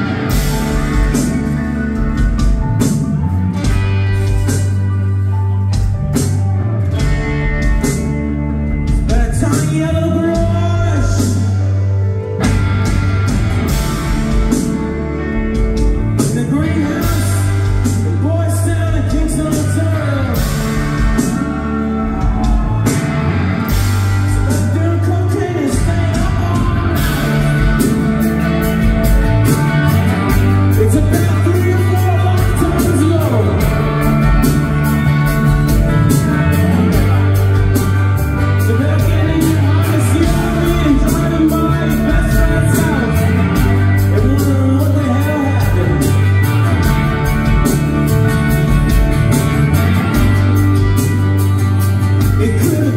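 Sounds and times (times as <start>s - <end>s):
bass guitar: 0.0s - 52.9s
drums: 0.0s - 52.9s
guitars strumming: 0.0s - 52.9s
man singing: 8.9s - 11.7s, 16.2s - 21.4s, 24.3s - 27.8s, 30.7s - 34.2s, 38.5s - 46.3s, 52.2s - 52.9s.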